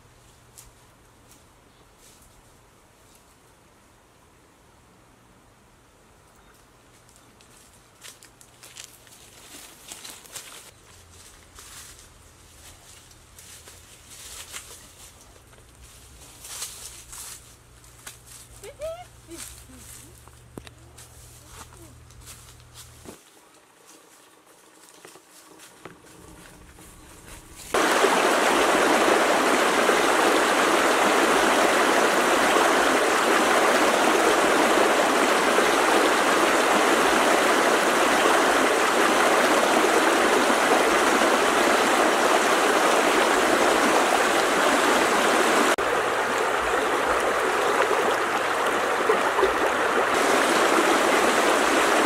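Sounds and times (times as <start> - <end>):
river rushing over stones: 27.7 - 52.0.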